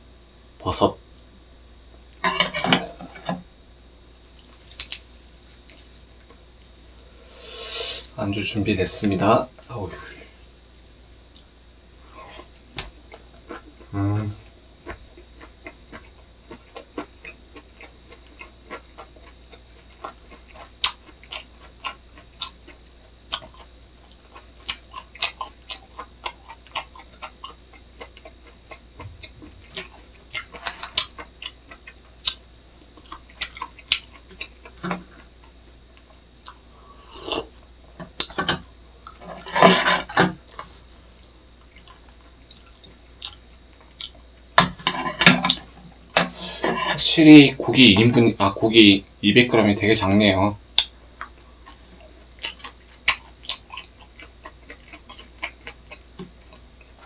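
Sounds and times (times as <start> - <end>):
close-up chewing with crunches: 4.3 - 6.4, 14.8 - 36.7, 39.0 - 44.4, 50.8 - 57.0.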